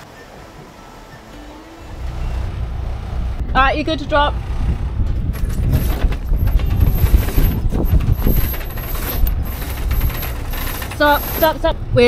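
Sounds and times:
low rumble: 0:01.8 - 0:12.0
sail hardware clicking and rattling: 0:05.1 - 0:11.7.

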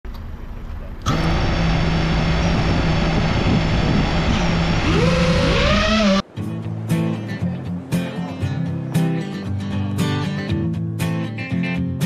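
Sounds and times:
drone motors whining: 0:01.1 - 0:06.2
music: 0:06.2 - 0:12.0.

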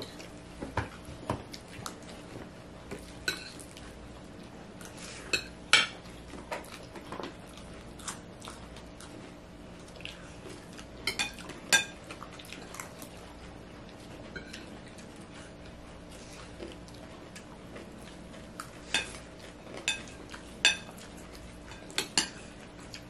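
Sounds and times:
spoons clinking on plates: 0:03.2 - 0:03.6, 0:11.1 - 0:12.0, 0:19.8 - 0:20.9, 0:21.7 - 0:22.4.

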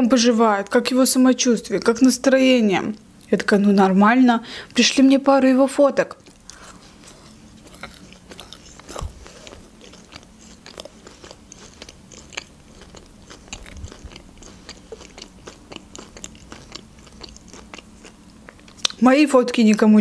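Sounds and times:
wet chewing mouth clicks: 0:06.1 - 0:19.0.

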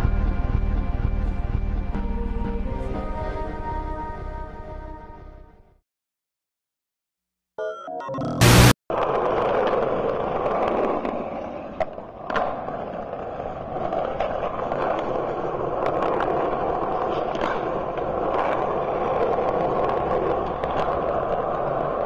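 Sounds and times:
skateboard wheels on rough pavement: 0:08.9 - 0:22.0.

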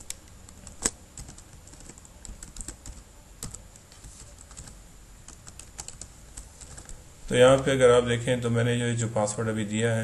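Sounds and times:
computer keyboard typing: 0:00.0 - 0:07.7.

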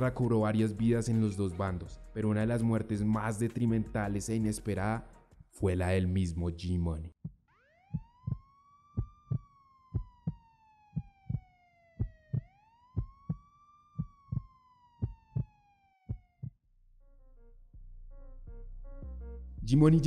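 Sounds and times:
heartbeat thumping: 0:07.2 - 0:08.4, 0:09.0 - 0:11.4, 0:12.0 - 0:13.4, 0:14.0 - 0:15.5, 0:16.1 - 0:16.6
police siren wailing: 0:07.7 - 0:16.3.

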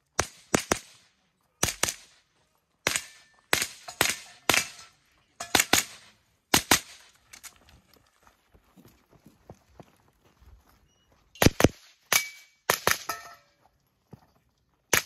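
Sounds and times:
rifle firing rapid shots: 0:00.2 - 0:01.0, 0:01.6 - 0:02.2, 0:02.8 - 0:04.8, 0:05.5 - 0:07.1, 0:11.4 - 0:13.1.

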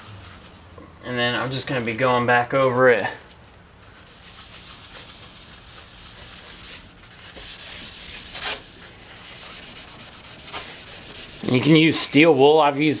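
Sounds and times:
abrasive pad scrubbing steel blade: 0:04.4 - 0:12.6.

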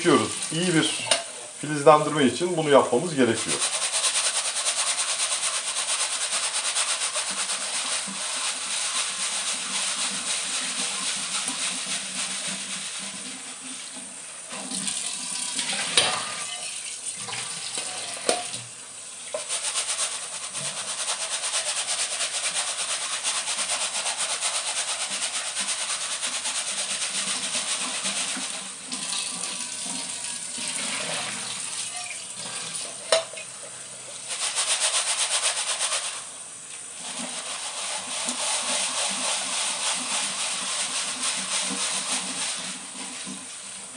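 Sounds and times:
water splashing into steel sink: 0:09.7 - 0:18.7, 0:27.8 - 0:33.5
tap running into sink: 0:13.9 - 0:19.5, 0:28.3 - 0:33.8, 0:43.0 - 0:43.5.

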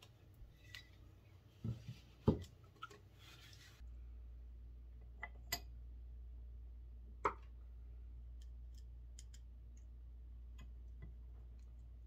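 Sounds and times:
steady low hum: 0:03.8 - 0:12.0
small metal clicks and taps: 0:08.4 - 0:09.9.

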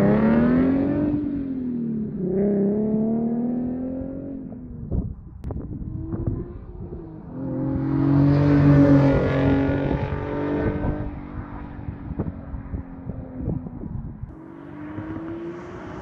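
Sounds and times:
sports car driving past: 0:05.7 - 0:16.0.

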